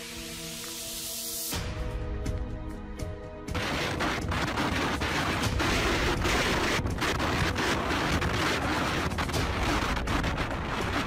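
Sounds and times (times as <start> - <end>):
strong wind gusts buffeting microphone: 3.5 - 11.0.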